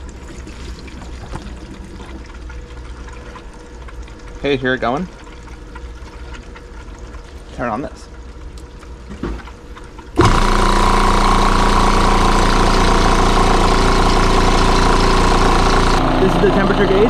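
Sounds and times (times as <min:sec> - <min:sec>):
water pump hum: 0:00.0 - 0:17.0
air compressor running: 0:10.2 - 0:17.0.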